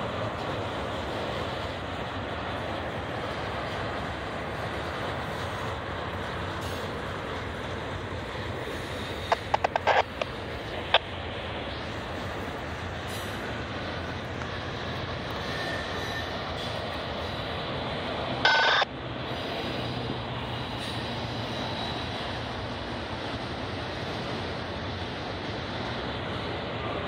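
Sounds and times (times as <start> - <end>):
freight train rumbling on rails: 0.0 - 27.0
sharp clicks: 9.2 - 11.0.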